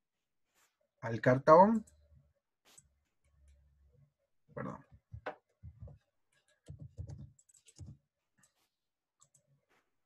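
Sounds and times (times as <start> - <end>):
keyboard and mouse clicking: 5.2 - 8.6, 9.2 - 9.5.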